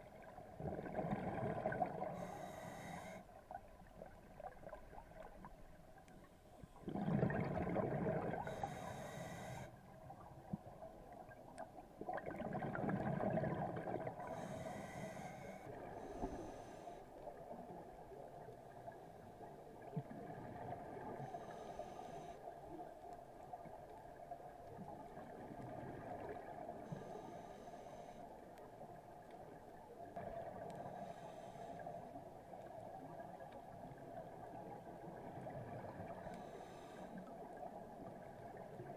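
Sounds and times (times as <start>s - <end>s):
regulator hissing inhalations: 2.2s - 3.2s, 8.4s - 9.7s, 14.3s - 17.0s
diver exhaling bubbles: 6.8s - 8.6s, 12.1s - 14.2s.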